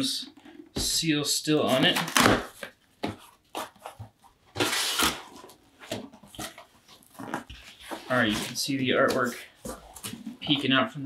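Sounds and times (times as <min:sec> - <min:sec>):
packing tape tearing: 0:01.7 - 0:02.7, 0:04.6 - 0:05.6.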